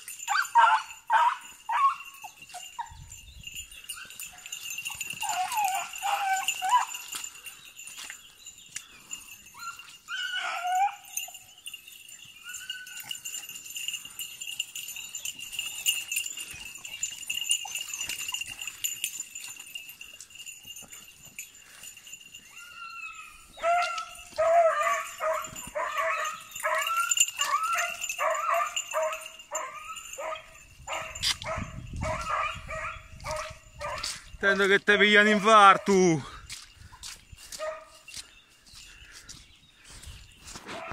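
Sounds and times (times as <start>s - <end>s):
hounds yelping: 0.0s - 8.2s, 8.9s - 34.3s, 37.6s - 38.1s, 40.5s - 40.9s
steady high ringing: 11.0s - 23.0s.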